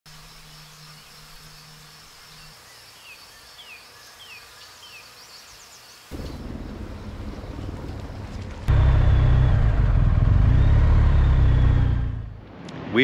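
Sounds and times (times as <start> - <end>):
falling bird chirps: 2.4 - 12.2
loud low rumble: 6.1 - 13.0.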